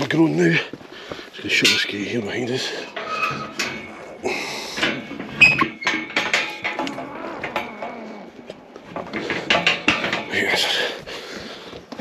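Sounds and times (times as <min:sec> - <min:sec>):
metal gate clanking shut: 0:01.6 - 0:10.8.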